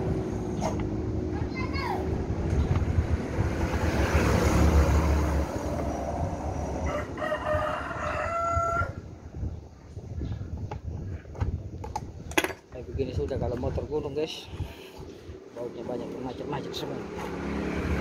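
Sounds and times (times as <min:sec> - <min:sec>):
rooster crowing: 0:06.8 - 0:09.0.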